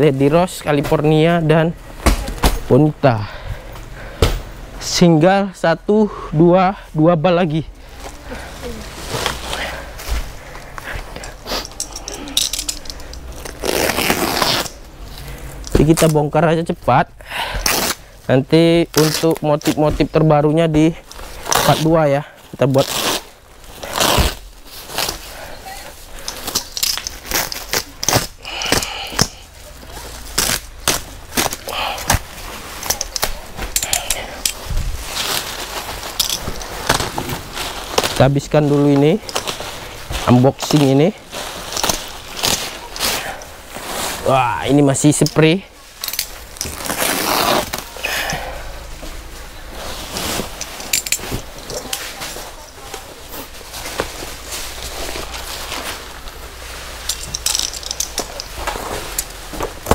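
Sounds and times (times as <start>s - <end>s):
plastic sack rustling and ripping: 8.1s - 10.5s, 21.1s - 59.9s.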